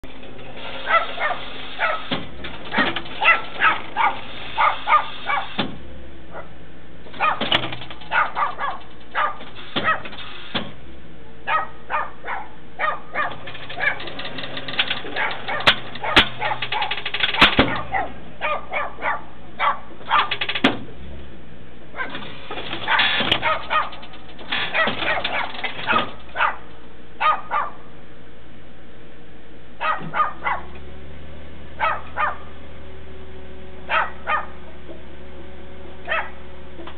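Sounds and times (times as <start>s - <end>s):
steady low hum: 0.0s - 36.9s
dog barking: 0.8s - 2.1s, 3.2s - 5.6s, 6.3s - 6.6s, 7.2s - 7.4s, 8.1s - 10.1s, 11.5s - 14.0s, 15.2s - 17.0s, 17.7s - 20.3s, 22.0s - 22.2s, 22.8s - 24.0s, 24.7s - 27.9s, 29.8s - 30.7s, 31.8s - 32.5s, 33.9s - 34.6s, 36.1s - 36.4s.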